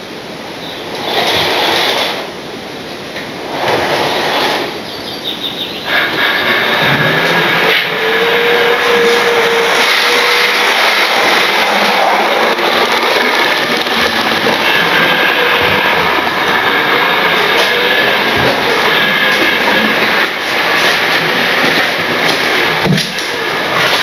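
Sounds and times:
wheels rolling on rails: 0.0s - 24.0s
model train motor whine: 5.4s - 24.0s.

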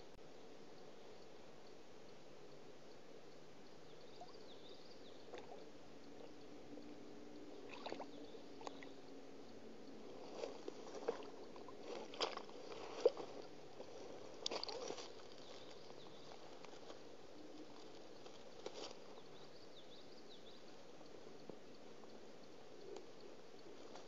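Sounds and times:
faint high bird chirps: 3.6s - 6.4s
water splashing: 7.6s - 8.9s, 14.4s - 15.2s
rustling of sticks and reeds: 10.1s - 19.6s.

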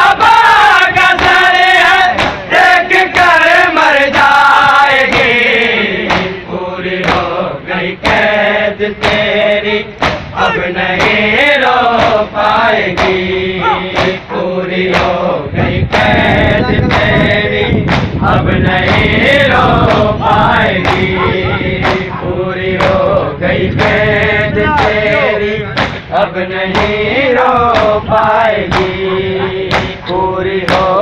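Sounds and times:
crowd of men chanting: 0.0s - 31.0s
chest-beating slaps: 1.1s - 3.4s, 4.1s - 6.4s, 7.0s - 7.3s, 10.0s - 11.3s, 11.9s - 12.3s, 12.9s - 14.3s, 14.9s - 15.2s, 17.8s - 18.2s, 20.8s - 22.2s, 24.8s - 27.0s, 27.7s - 31.0s.

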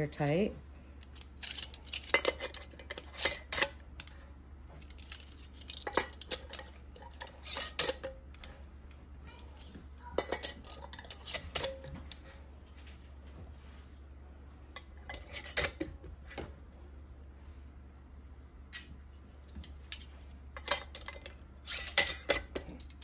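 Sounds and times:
metal rings scraping on glass jars: 1.2s - 3.7s, 4.8s - 8.2s, 14.9s - 15.8s, 20.6s - 23.0s.

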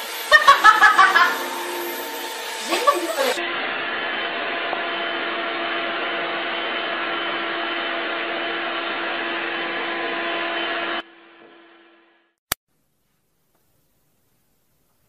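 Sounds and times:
stick vacuum cleaner running: 0.0s - 11.7s.

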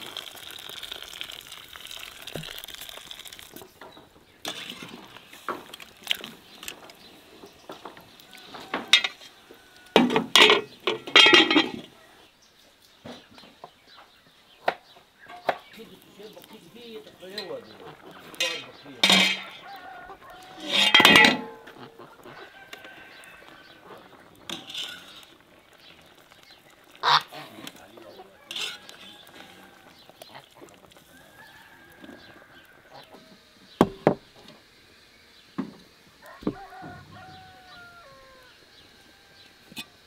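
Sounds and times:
farm fowl calling: 7.6s - 12.3s, 15.0s - 25.2s, 26.6s - 33.8s, 36.1s - 40.0s.

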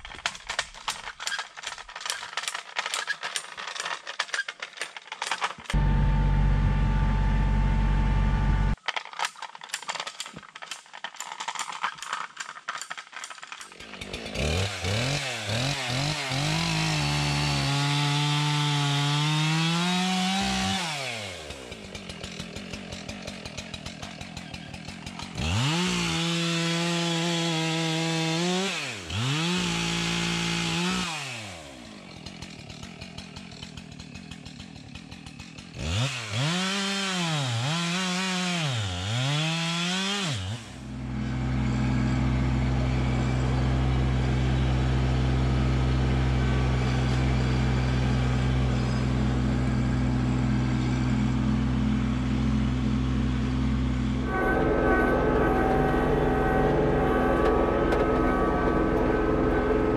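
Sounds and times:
chainsaw cutting logs: 0.0s - 55.2s
tractor diesel engine running: 5.6s - 8.8s, 40.8s - 59.9s.

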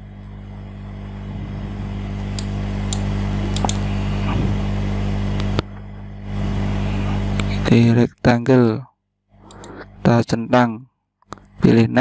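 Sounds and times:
steady low hum: 0.0s - 12.0s
computer mouse clicks: 2.4s - 3.8s, 9.4s - 9.8s.

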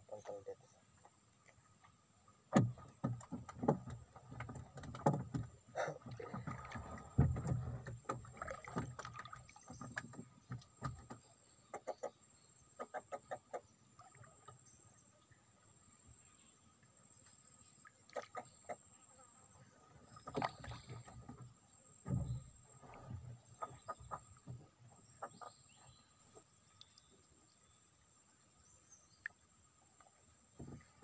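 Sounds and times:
knocks against wooden boat: 2.5s - 5.6s, 6.2s - 9.1s, 22.0s - 22.5s.

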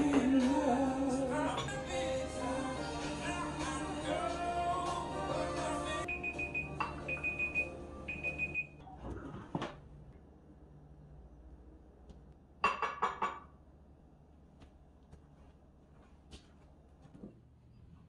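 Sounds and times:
oven timer beeping: 6.0s - 8.8s.

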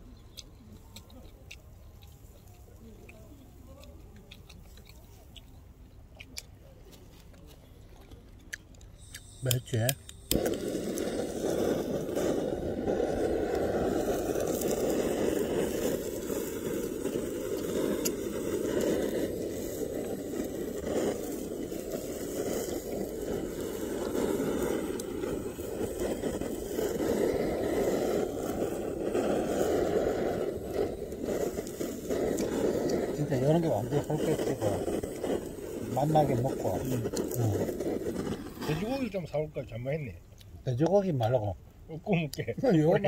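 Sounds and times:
butane torch flame rushing: 8.6s - 43.0s.

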